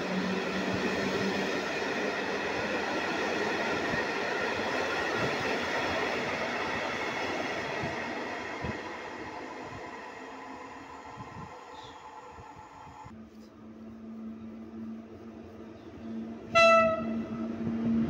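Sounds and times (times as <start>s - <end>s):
train wheels rumbling on rails: 0.0s - 13.2s, 14.4s - 18.0s.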